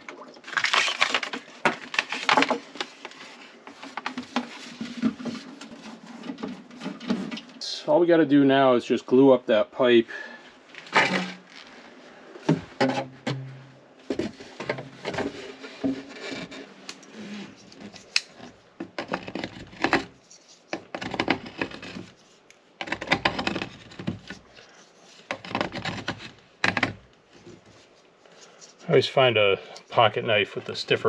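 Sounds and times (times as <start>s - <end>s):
scraping plastic pipe rim: 10.9s - 11.6s, 12.5s - 27.7s.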